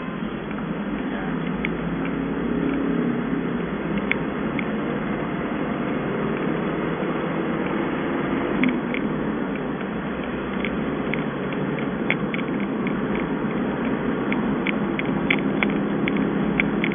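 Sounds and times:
vehicle road and engine noise: 0:00.0 - 0:16.9
small clicks and rattles: 0:03.9 - 0:04.8, 0:08.5 - 0:16.9.

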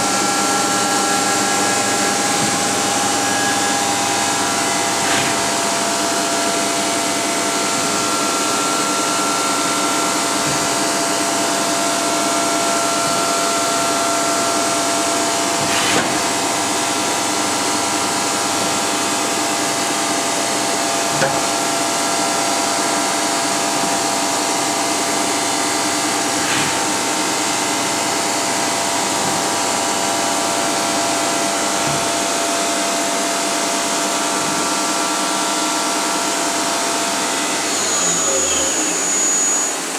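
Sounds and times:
higher machine tone: 0:00.0 - 0:15.6, 0:27.0 - 0:39.9
machine whine over hiss: 0:00.0 - 0:39.9.

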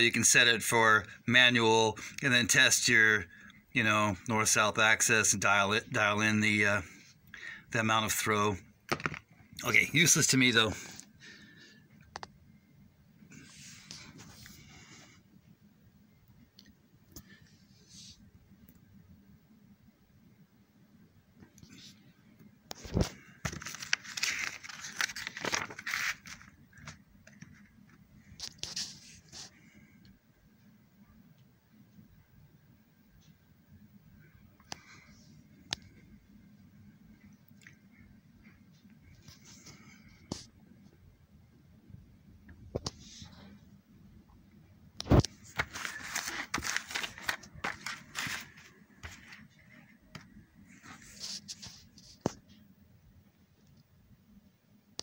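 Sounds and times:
paper pages rustling: 0:22.7 - 0:29.6, 0:45.0 - 0:52.5.

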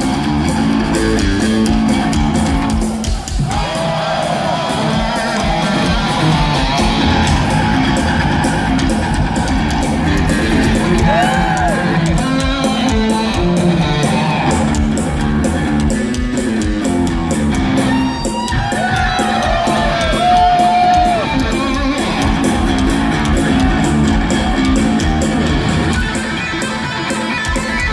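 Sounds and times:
electric bass: 0:00.0 - 0:03.0, 0:05.4 - 0:18.2, 0:19.4 - 0:27.9
electric guitar bent notes: 0:04.8 - 0:18.3, 0:19.4 - 0:27.9.

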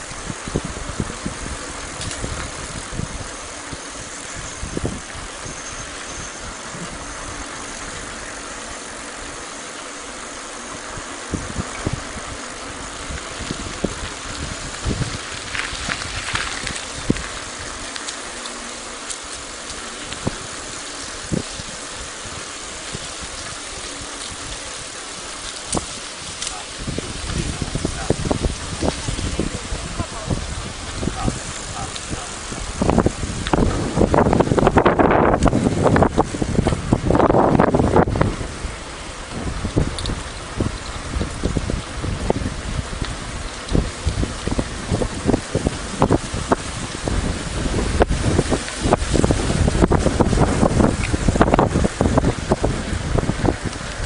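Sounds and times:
vehicle rumble on rough lane: 0:00.0 - 0:54.0.

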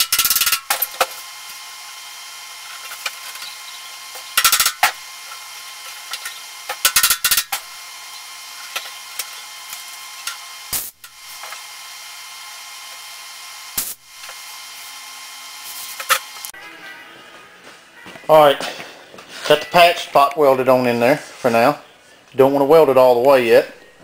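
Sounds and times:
welding arc crackling: 0:00.0 - 0:16.6.

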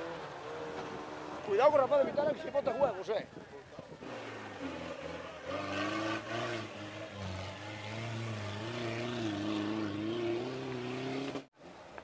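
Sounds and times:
off-road vehicle engine revving: 0:03.9 - 0:11.5.

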